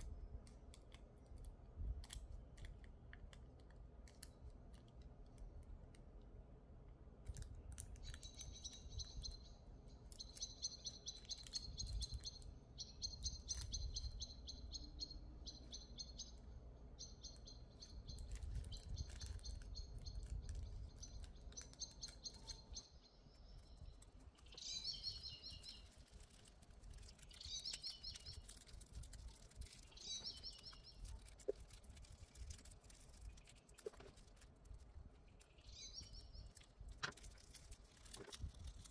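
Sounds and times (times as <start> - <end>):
birds chirping: 7.9 - 31.8, 35.1 - 37.3
foil crinkling on a nail: 18.1 - 22.7, 23.3 - 38.9.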